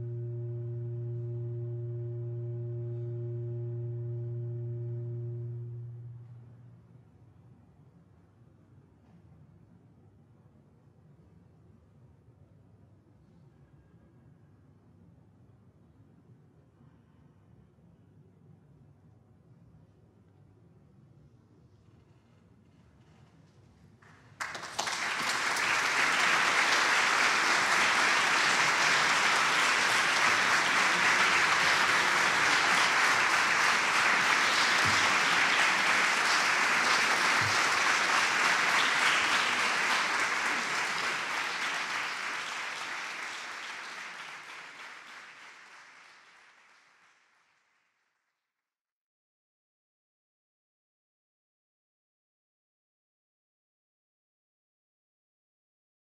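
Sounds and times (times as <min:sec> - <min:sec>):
audience applauding: 0:24.4 - 0:47.3.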